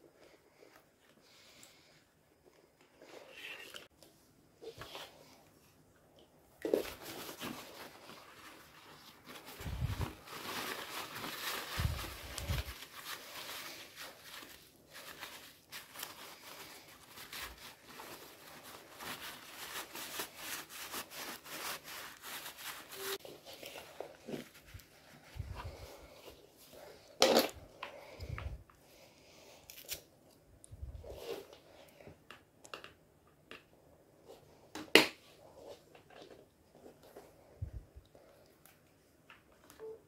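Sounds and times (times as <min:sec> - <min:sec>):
plastic bag crinkling: 0:06.6 - 0:24.9.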